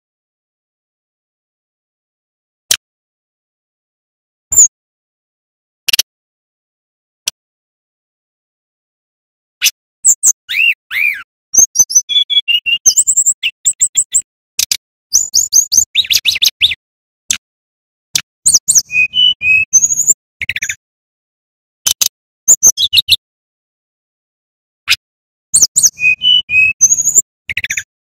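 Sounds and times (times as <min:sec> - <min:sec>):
bird singing clicks and whistles: 0:04.5 - 0:04.7, 0:05.9 - 0:06.1, 0:09.6 - 0:17.4, 0:18.1 - 0:20.8, 0:21.8 - 0:23.2, 0:25.6 - 0:27.9.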